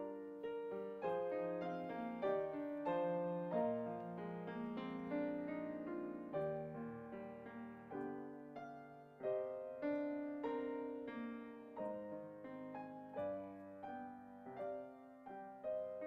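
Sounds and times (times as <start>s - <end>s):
piano playing slow chords: 0.0s - 16.0s.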